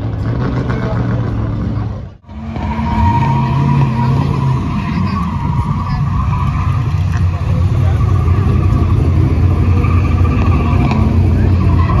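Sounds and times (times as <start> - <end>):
car engine at high revs: 0.0 - 12.0
tyres squealing: 2.4 - 12.0.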